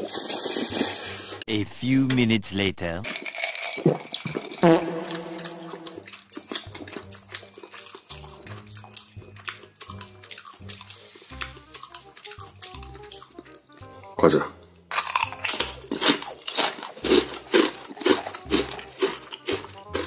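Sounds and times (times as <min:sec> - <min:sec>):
man gulping water: 0:03.1 - 0:11.6
light background music: 0:04.6 - 0:20.0.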